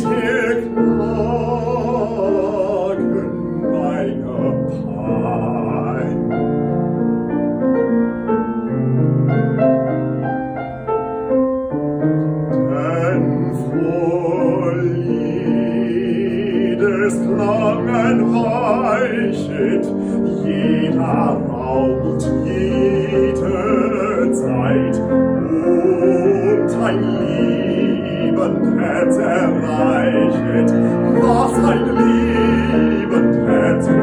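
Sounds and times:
baritone man singing with vibrato: 0:00.0 - 0:06.6, 0:12.5 - 0:34.0
piano accompaniment: 0:00.0 - 0:34.0.

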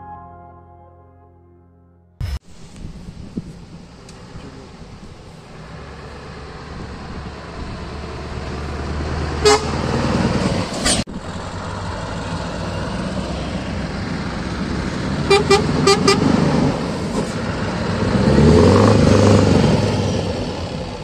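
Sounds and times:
truck engines running: 0:02.2 - 0:21.0
truck engine revving past: 0:05.5 - 0:21.0
truck horn toots: 0:09.4 - 0:10.0, 0:15.2 - 0:16.4.

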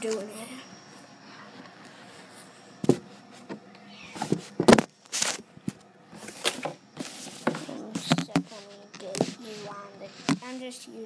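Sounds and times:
scuffs and rubs on microphone: 0:07.0 - 0:10.8.

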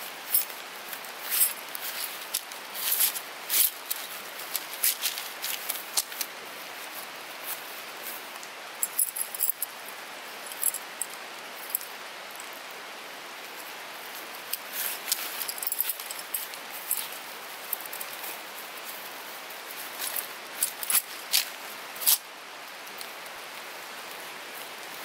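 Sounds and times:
steady background hiss: 0:00.0 - 0:25.0
metal tent pegs clinking: 0:00.3 - 0:00.6, 0:01.2 - 0:06.2, 0:08.8 - 0:09.8, 0:14.5 - 0:17.1, 0:20.0 - 0:22.2.

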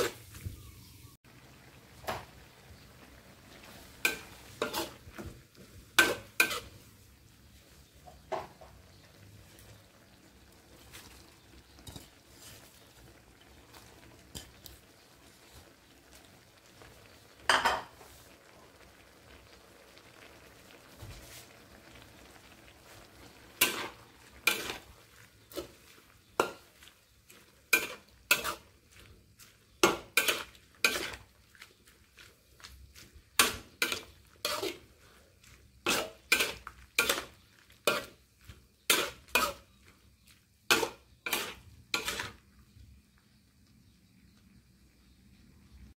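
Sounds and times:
metal spatula scraping a wok: 0:00.0 - 0:00.3, 0:03.2 - 0:16.2, 0:23.0 - 0:42.4
faint sizzle: 0:00.0 - 0:45.9.

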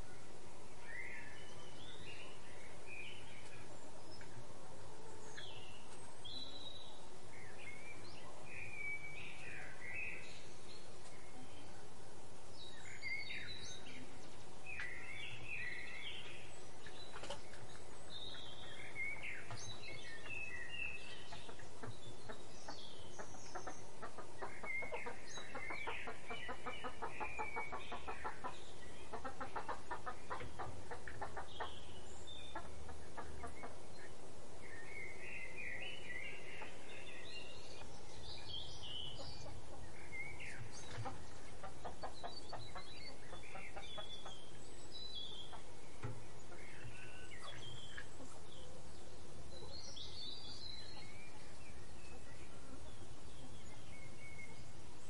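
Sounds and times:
birds chirping and calling: 0:12.5 - 0:55.0.

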